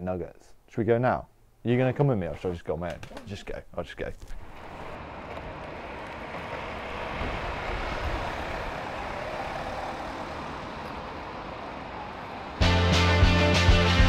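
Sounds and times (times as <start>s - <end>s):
road traffic noise: 4.2s - 14.0s.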